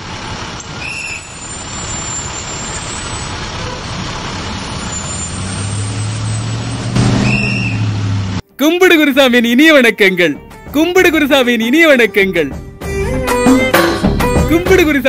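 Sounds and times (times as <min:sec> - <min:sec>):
bus engine and road noise: 0:00.0 - 0:15.0.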